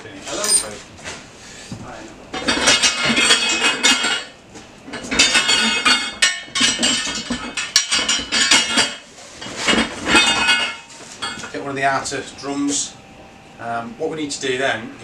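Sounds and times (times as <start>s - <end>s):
metal parts clanking: 0.3s - 0.8s.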